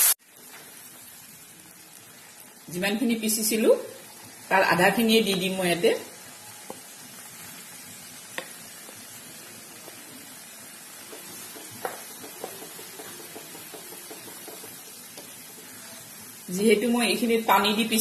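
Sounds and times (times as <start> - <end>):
paste sizzling in hot oil: 0.0 - 18.0
wooden spatula stirring: 11.0 - 15.8.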